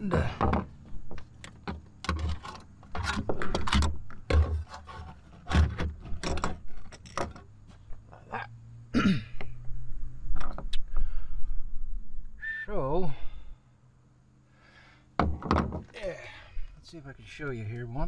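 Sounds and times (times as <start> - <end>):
heavy thump and scrape: 1.6 - 7.9.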